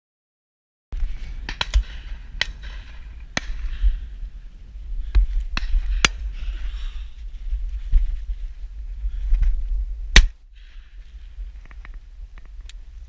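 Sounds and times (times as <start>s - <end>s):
wind rumbling on microphone: 1.0s - 13.0s
sharp cracks: 1.4s - 3.9s, 10.1s - 10.4s.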